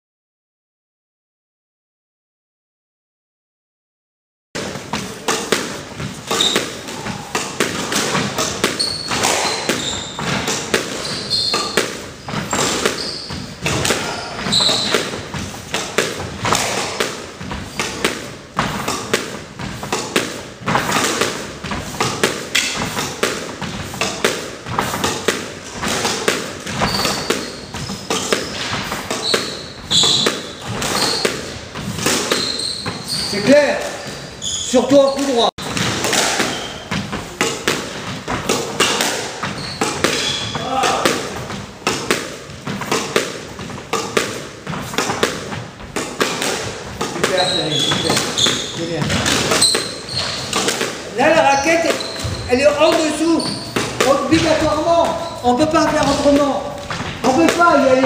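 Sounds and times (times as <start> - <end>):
shoe soles squeaking: 6.0 - 58.0.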